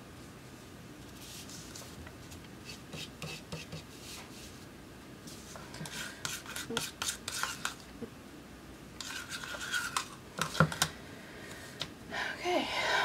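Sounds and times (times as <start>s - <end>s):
palette knife scraping paint in cup: 5.8s - 7.8s, 9.0s - 10.6s.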